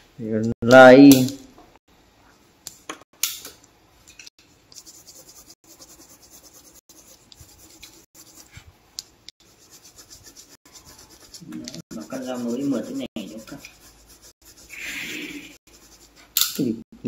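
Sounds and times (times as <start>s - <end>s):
pencil scratching on paper: 4.7s - 8.7s, 9.4s - 16.4s.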